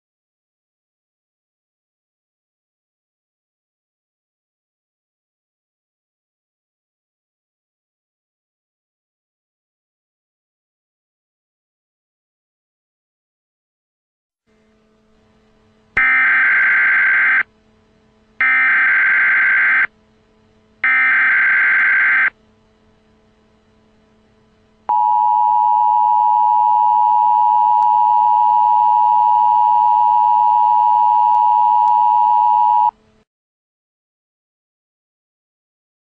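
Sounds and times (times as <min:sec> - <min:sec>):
two-tone attention signal: 0:16.0 - 0:17.5, 0:18.4 - 0:19.9, 0:20.8 - 0:22.3, 0:24.9 - 0:32.9.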